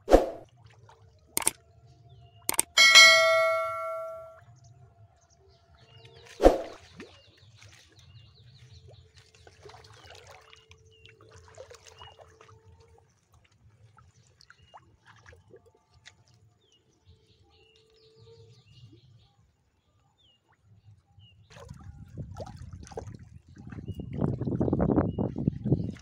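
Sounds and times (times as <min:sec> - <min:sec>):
splashing and trickling water: 0:00.0 - 0:01.6, 0:06.1 - 0:17.0, 0:21.4 - 0:26.0.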